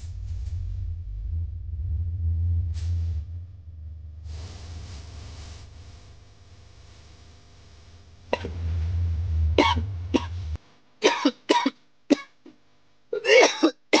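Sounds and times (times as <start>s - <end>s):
low rumble: 0.0s - 10.8s
man coughing: 9.6s - 10.4s, 11.0s - 12.3s, 13.2s - 14.0s.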